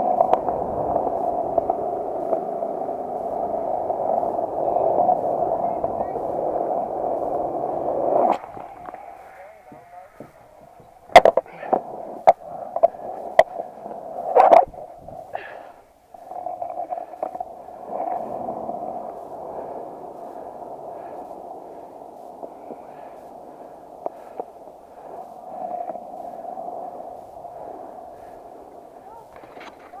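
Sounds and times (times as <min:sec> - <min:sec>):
skateboard wheels rolling on concrete: 0:00.0 - 0:30.0.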